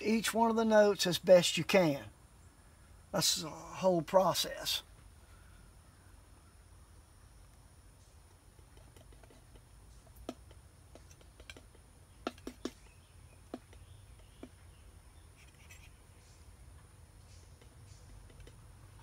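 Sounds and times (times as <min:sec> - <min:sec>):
palette knife tapping on palette: 0:08.6 - 0:12.8.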